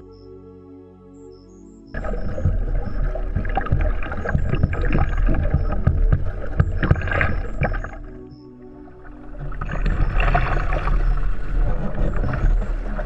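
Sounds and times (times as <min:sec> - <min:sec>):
short irregular knocks: 0:02.0 - 0:08.1
water splashing against kayak hull: 0:02.0 - 0:13.0
wind rumbling on microphone: 0:02.0 - 0:13.0.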